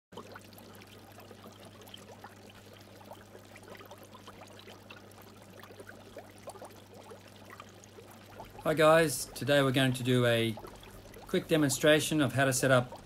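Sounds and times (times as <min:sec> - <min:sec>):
water trickling and bubbling: 0:00.1 - 0:13.0.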